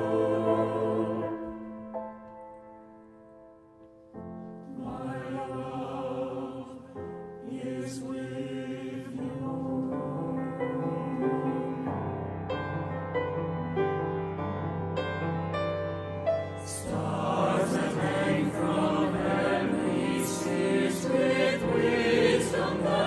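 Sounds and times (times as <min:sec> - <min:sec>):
mixed-voice choir singing: 0:00.0 - 0:01.9, 0:04.7 - 0:12.5, 0:16.6 - 0:23.0.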